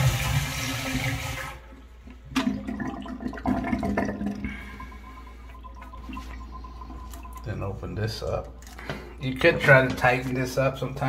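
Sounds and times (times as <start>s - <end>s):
toilet flushing: 0.0s - 8.6s.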